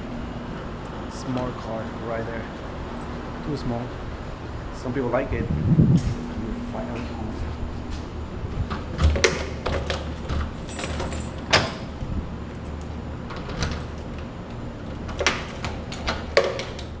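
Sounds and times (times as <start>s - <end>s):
low steady hum: 0.0s - 17.0s
keys clicking in door lock: 9.0s - 11.9s, 12.5s - 17.0s.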